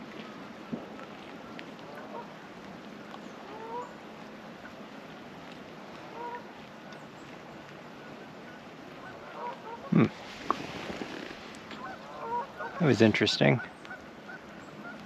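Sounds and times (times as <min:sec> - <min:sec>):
background hiss: 0:00.0 - 0:15.0
geese honking: 0:01.8 - 0:02.5, 0:03.4 - 0:04.0, 0:06.0 - 0:07.0, 0:07.9 - 0:10.0, 0:11.6 - 0:15.0.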